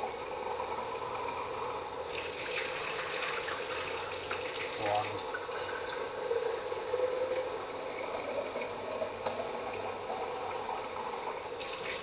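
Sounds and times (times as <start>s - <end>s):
tap water filling plastic bowl: 2.1s - 6.1s, 7.3s - 12.0s.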